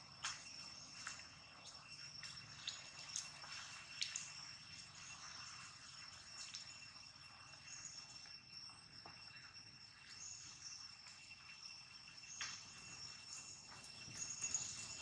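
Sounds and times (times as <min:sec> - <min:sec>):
insect trilling: 0:09.2 - 0:15.0.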